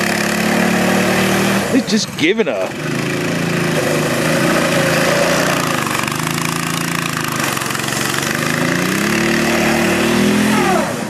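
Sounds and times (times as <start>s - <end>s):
small engine revving: 0.0s - 11.0s.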